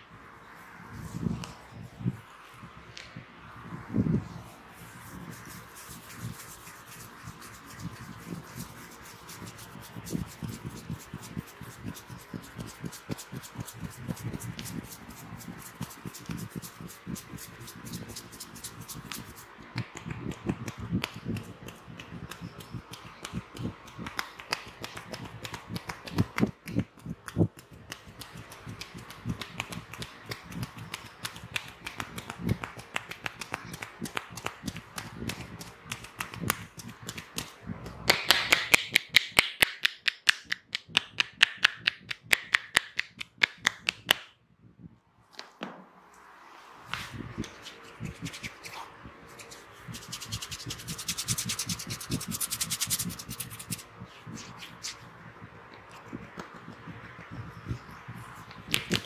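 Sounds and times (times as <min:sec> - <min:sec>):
fingers rubbing through hair: 0:00.9 - 0:02.2, 0:03.8 - 0:44.3, 0:46.9 - 0:59.0
hair snapping crackles: 0:17.9 - 0:44.3, 0:58.5 - 0:59.0.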